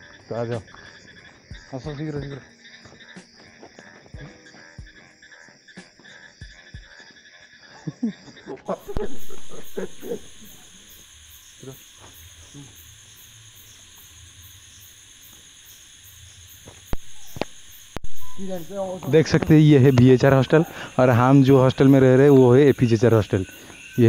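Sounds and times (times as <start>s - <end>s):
voices: 0.0s - 5.2s, 7.7s - 11.0s, 11.6s - 12.8s, 18.1s - 24.0s
music: 0.0s - 10.2s, 18.2s - 24.0s
night insects chirping: 0.0s - 24.0s.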